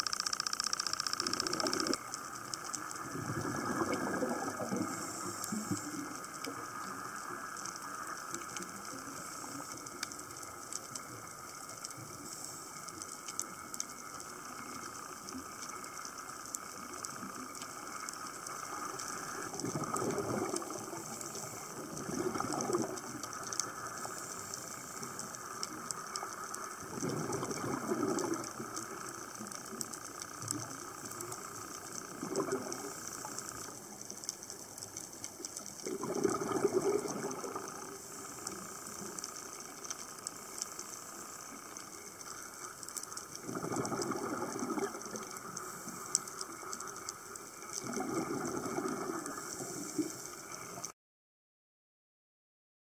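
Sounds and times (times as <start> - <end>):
underwater hiss with faint crackling: 0.0 - 50.9
bubbling of exhaled breath: 1.2 - 2.1, 3.0 - 6.2, 19.0 - 25.0, 26.8 - 28.7, 32.2 - 33.6, 35.8 - 39.0, 43.4 - 46.1, 47.6 - 50.2.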